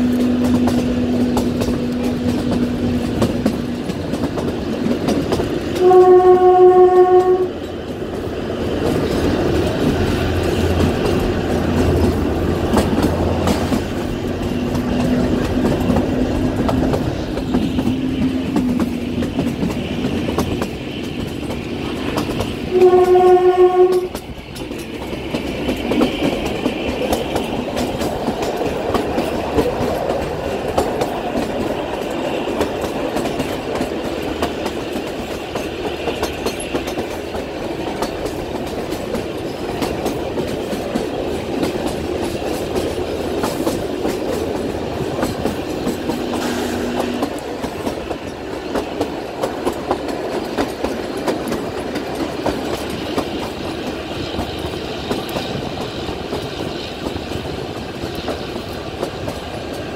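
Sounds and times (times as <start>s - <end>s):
train horn blast: 0.0s - 3.2s, 5.8s - 7.7s, 22.7s - 24.2s, 46.1s - 47.4s
train wheels clacking on rails: 0.0s - 59.9s.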